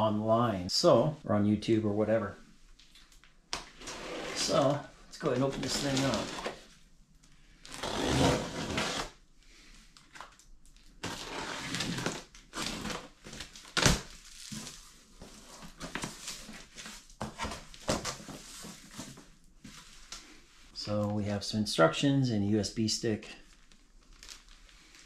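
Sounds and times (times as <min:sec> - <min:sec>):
cardboard scraping: 0:03.8 - 0:06.7, 0:07.7 - 0:09.2, 0:11.0 - 0:13.1
plastic film crinkling: 0:04.4 - 0:06.8, 0:10.0 - 0:20.2, 0:23.4 - 0:25.0.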